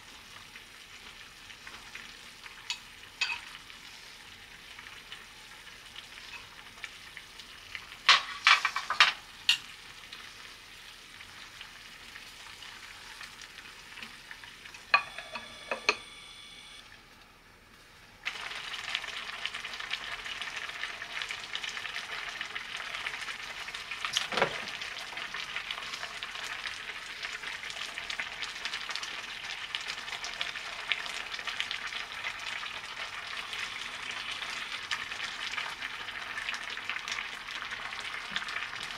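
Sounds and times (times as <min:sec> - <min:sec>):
soup bubbling in a pot: 0:00.0 - 0:15.4, 0:18.2 - 0:38.9
metal spoon clinking on pot: 0:02.7 - 0:03.5, 0:14.9 - 0:16.0.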